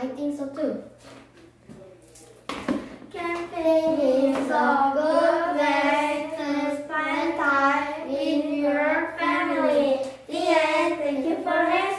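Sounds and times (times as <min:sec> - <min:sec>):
children singing in unison: 0:03.2 - 0:11.9.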